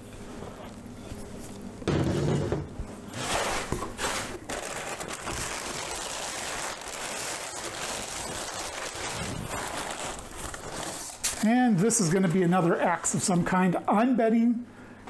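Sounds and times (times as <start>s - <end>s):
packing paper crinkling: 3.1s - 13.4s.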